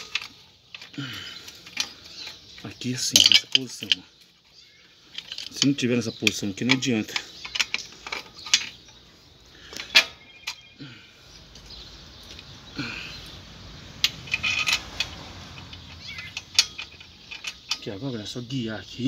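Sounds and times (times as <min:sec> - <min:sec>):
wrench and bolt clinking on metal: 0:00.0 - 0:09.0, 0:09.6 - 0:10.8, 0:14.0 - 0:18.5.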